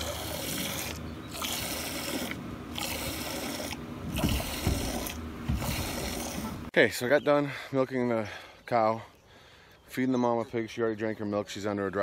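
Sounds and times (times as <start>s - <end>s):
milk squirting into a pail: 0.0s - 6.7s.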